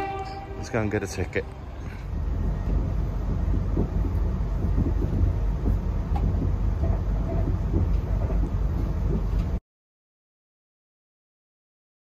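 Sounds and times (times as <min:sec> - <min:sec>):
train rumbling on rails: 0:00.0 - 0:09.6
light knocks and rattles: 0:03.3 - 0:09.6.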